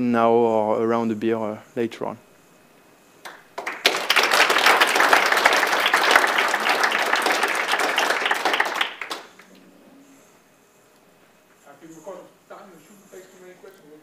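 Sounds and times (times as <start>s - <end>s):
audience applauding: 3.2s - 9.6s.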